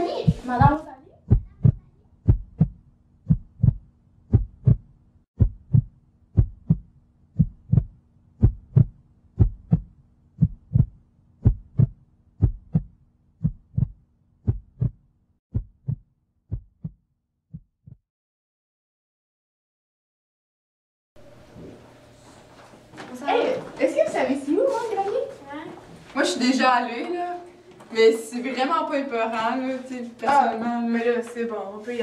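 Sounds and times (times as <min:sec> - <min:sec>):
heartbeat double thump: 0:00.3 - 0:18.0.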